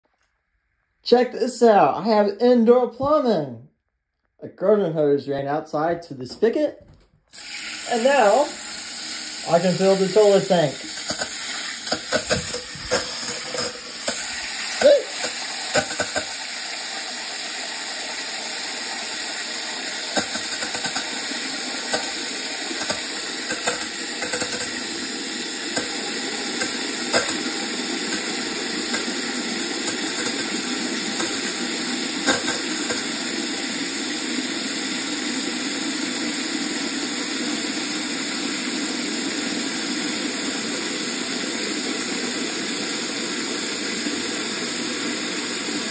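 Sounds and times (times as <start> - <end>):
water spraying into toilet tank: 7.3 - 36.9
knocks and clicks: 15.2 - 16.4, 22.8 - 24.8, 26.6 - 27.5, 32.2 - 33.1.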